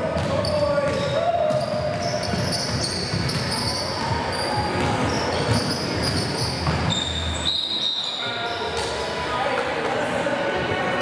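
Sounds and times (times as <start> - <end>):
basketball bouncing: 0.0 - 7.1
shoes squeaking on floor: 0.2 - 9.0.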